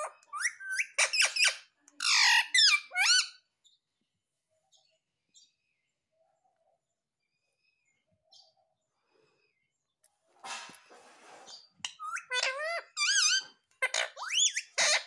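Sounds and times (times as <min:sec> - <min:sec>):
parakeet squawking: 0:00.0 - 0:03.5, 0:11.8 - 0:15.0.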